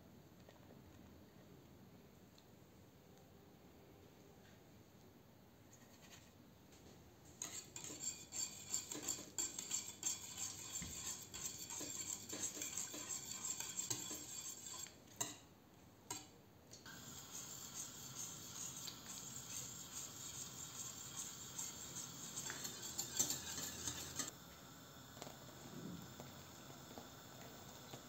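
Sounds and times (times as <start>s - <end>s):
whisk scraping a metal pot: 7.4s - 15.4s, 16.9s - 24.4s.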